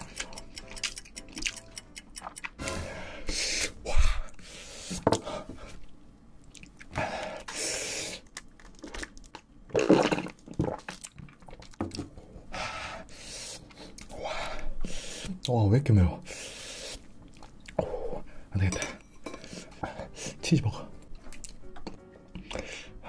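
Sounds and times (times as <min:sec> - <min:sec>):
chewing and slurping noodles: 0:00.0 - 0:02.7.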